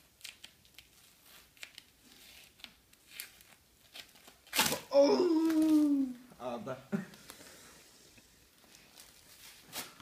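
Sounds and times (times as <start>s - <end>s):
plastic and tape crinkling: 0.0s - 6.2s, 8.5s - 10.0s
wrapping ripping: 0.2s - 6.0s.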